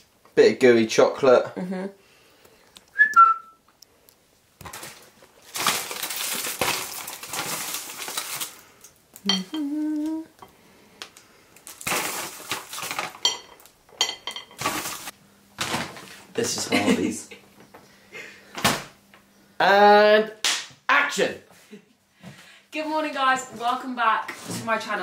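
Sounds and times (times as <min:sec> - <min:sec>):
cutlery and crockery clinking: 0:09.3 - 0:09.6, 0:12.9 - 0:15.0.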